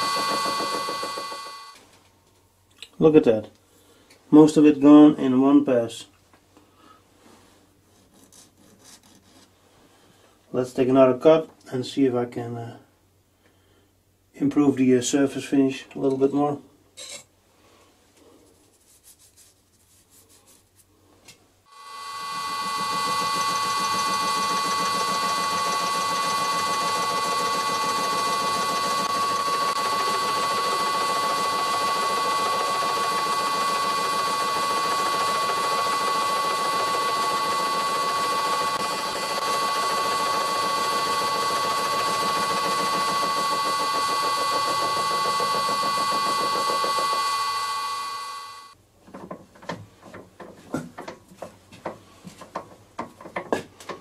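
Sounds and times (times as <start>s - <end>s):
mill cutting metal with ringing whine: 0.0s - 1.8s, 21.7s - 48.8s.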